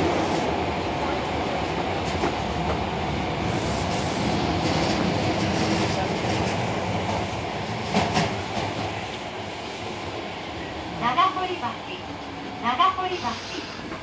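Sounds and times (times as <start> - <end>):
train wheels on track: 0.0 - 14.0
sharp track clacks: 7.8 - 9.0.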